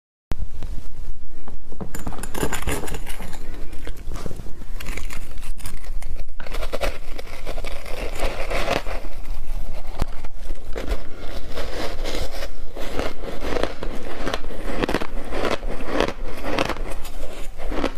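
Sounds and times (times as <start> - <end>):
ice being chewed with loud crunches: 4.8 - 17.9.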